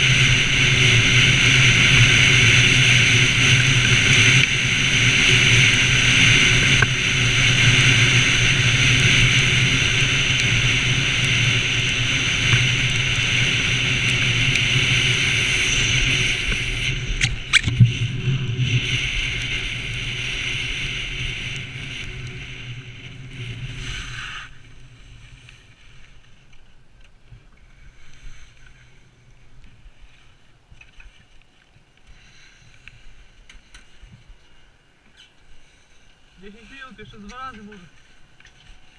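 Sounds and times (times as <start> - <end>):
wind rushing over camera: 0.0 - 38.9
skis hissing on snow: 23.2 - 26.1, 35.6 - 38.2.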